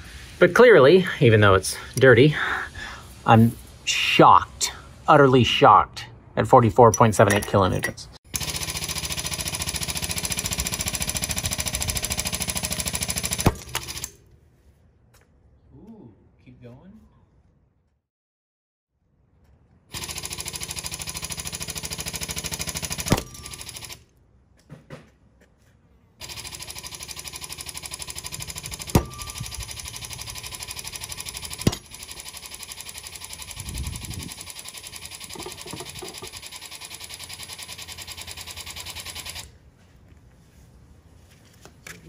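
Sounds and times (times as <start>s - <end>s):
hydraulic pump running: 8.3s - 14.2s, 19.9s - 24.0s, 26.2s - 39.5s.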